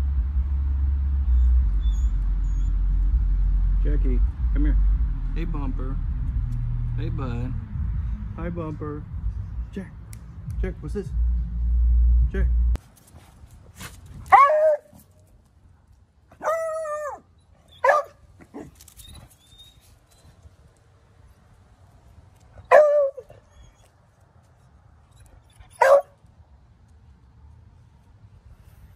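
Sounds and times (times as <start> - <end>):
dog barking: 14.3 - 14.9, 17.8 - 18.2, 22.7 - 23.3, 25.8 - 26.2.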